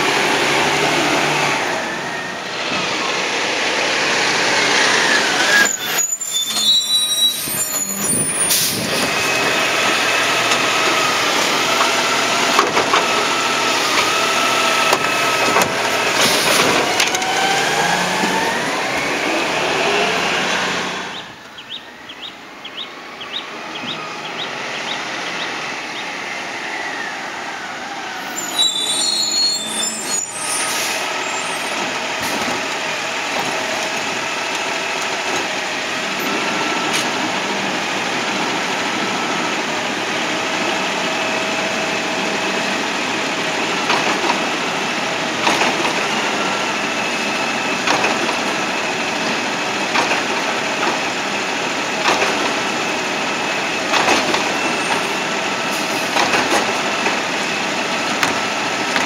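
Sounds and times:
air brakes hissing: 0:05.2 - 0:09.3, 0:16.0 - 0:16.8, 0:28.2 - 0:32.5, 0:54.4 - 0:56.2.

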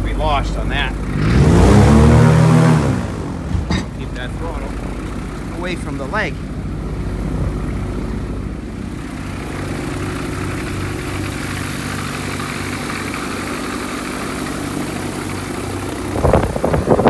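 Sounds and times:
aircraft engine running: 0:00.0 - 0:17.0
gusty wind on microphone: 0:16.1 - 0:17.0.

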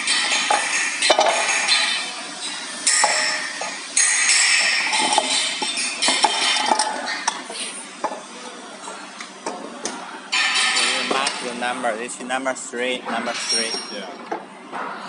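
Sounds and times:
metal scraping with ringing: 0:13.2 - 0:14.1.

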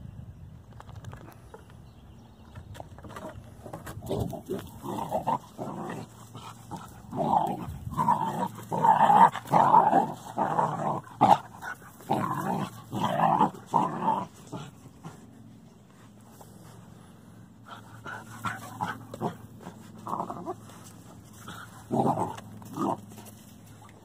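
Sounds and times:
puppy growling: 0:03.7 - 0:15.2, 0:17.7 - 0:23.2.

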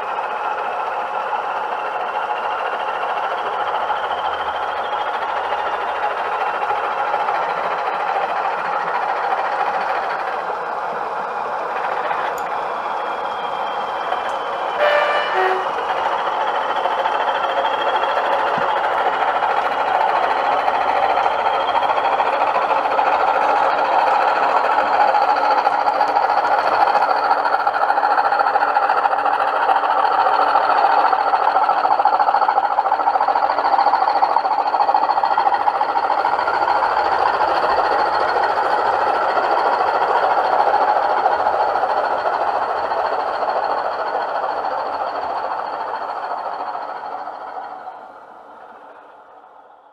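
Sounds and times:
diesel engine sound from speakers: 0:00.0 - 0:49.9
model train running on track: 0:00.0 - 0:49.9.

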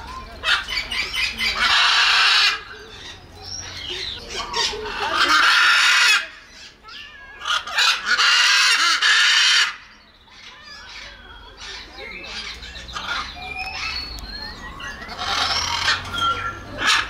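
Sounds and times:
parrot chattering calls: 0:00.4 - 0:14.1, 0:15.1 - 0:17.0
macaw screeching: 0:00.5 - 0:17.0
bird whistles: 0:11.0 - 0:17.0.

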